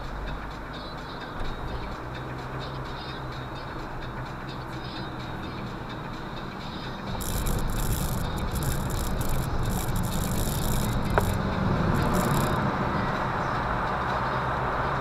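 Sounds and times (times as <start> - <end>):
car engine hum: 0.0 - 15.0
sharp click: 7.2 - 11.4, 12.0 - 12.6.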